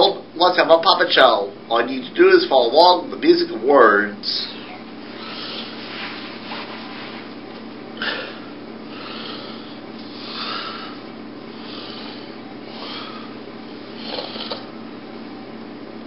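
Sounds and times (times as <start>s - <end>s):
low room hum: 0.0s - 16.0s
breath-like hissing: 5.1s - 5.9s, 8.0s - 14.7s
rustling: 5.6s - 7.4s.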